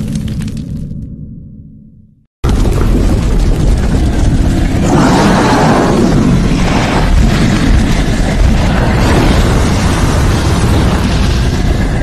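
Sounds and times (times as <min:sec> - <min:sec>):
fire and explosion rumble: 0:02.4 - 0:12.0.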